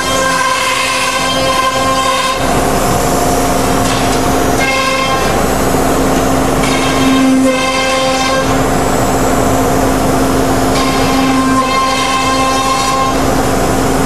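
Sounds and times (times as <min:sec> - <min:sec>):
cnc router cutting whine: 0:00.0 - 0:14.0.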